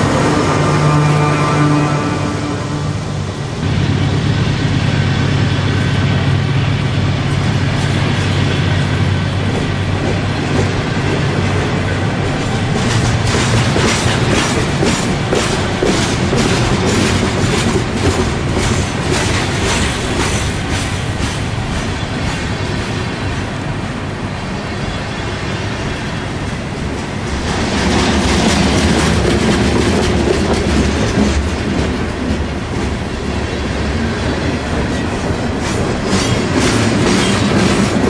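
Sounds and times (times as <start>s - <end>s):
train wheels rumbling on rail: 0.0s - 38.0s
wheels clacking over rail joints: 4.9s - 23.0s, 26.5s - 38.0s.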